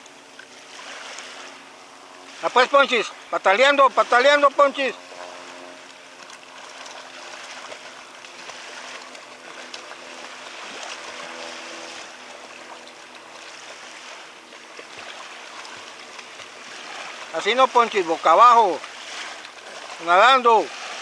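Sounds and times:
small waves washing: 0.0 - 21.0
child splashing water: 5.0 - 21.0.

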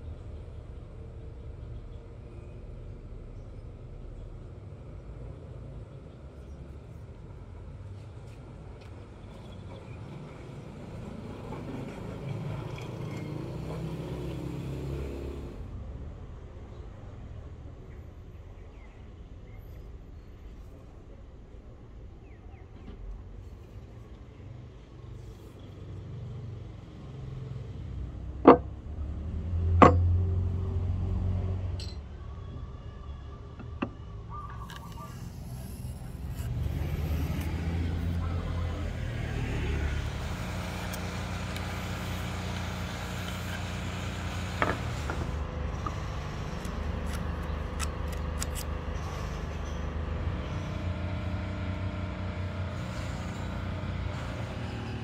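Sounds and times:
low traffic rumble: 0.0 - 55.0
wood knocking on workbench: 28.4 - 28.6.

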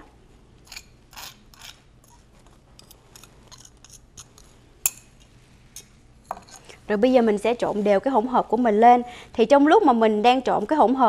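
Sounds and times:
fork scraping a plate: 0.6 - 4.6.

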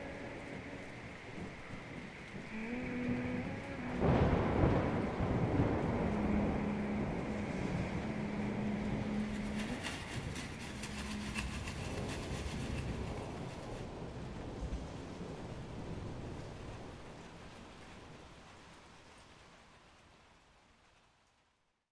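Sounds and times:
steady low hum: 0.0 - 13.9
raindrops ticking: 0.0 - 14.0
thunder rumbling: 0.0 - 18.2
rain falling: 0.0 - 21.9.

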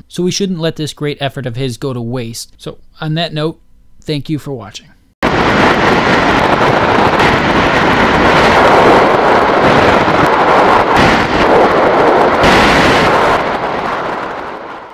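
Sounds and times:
rumbling rush of noise: 5.2 - 14.9.

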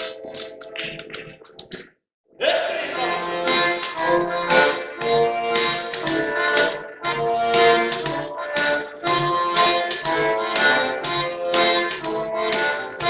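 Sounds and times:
accordion playing a melody: 2.8 - 13.0.

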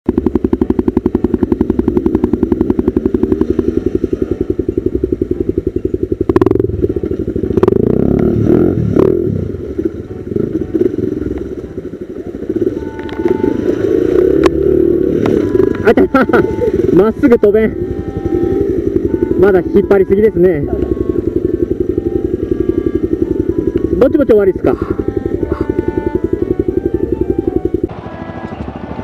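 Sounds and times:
engine clatter: 0.0 - 29.0
motorcycle engine running: 0.0 - 29.0.

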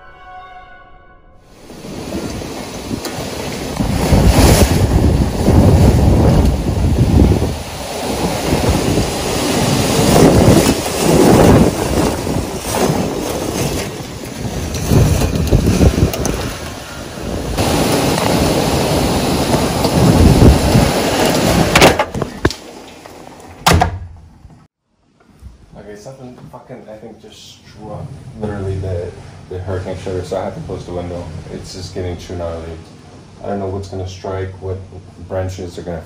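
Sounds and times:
hurricane wind in trees: 1.5 - 23.7, 27.7 - 36.0
heavy rain: 1.6 - 22.0
wind buffeting microphone: 1.6 - 22.5.

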